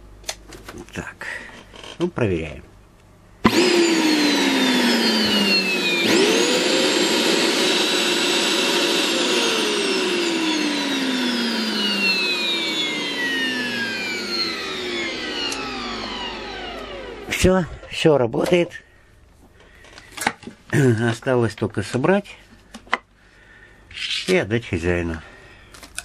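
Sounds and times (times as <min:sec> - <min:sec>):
vacuum cleaner motor whine: 0:03.4 - 0:17.5.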